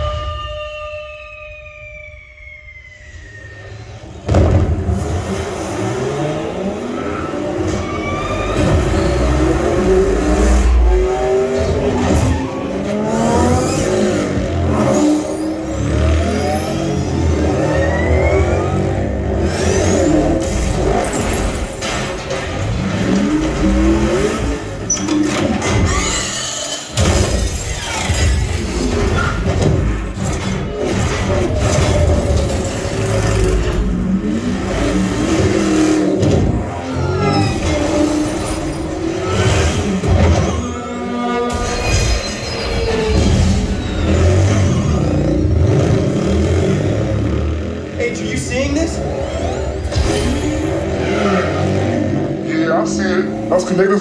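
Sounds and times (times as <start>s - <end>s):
racing car engines revving: 3.4s - 54.0s
crash impacts: 4.1s - 6.5s.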